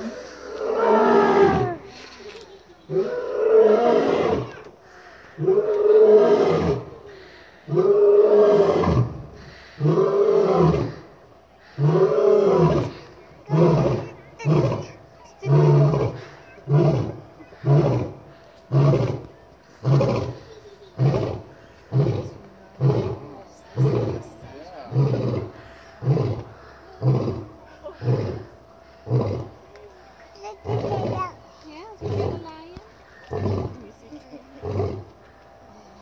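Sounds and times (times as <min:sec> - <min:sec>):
lion roaring: 0:00.0 - 0:01.8, 0:07.7 - 0:09.2, 0:09.8 - 0:11.1, 0:11.8 - 0:20.4, 0:21.0 - 0:29.6, 0:30.6 - 0:31.4, 0:32.0 - 0:32.5, 0:33.2 - 0:33.8
lion grunting calls: 0:11.7 - 0:29.6, 0:30.5 - 0:32.5.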